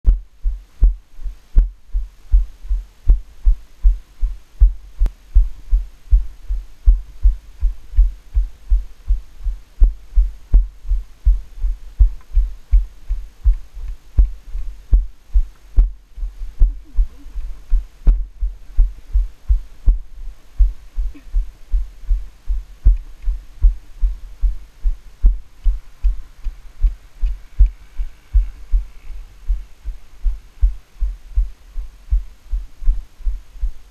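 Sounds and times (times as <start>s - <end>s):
muffled hoof thuds: 1.6s - 33.8s
faint clicks: 26.0s - 29.2s.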